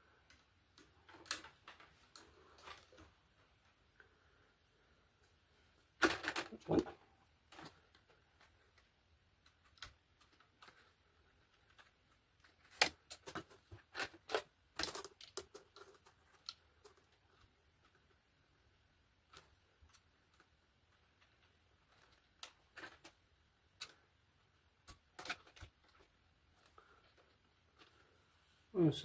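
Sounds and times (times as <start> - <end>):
plastic tubes rustling and scraping: 0.0 - 29.0.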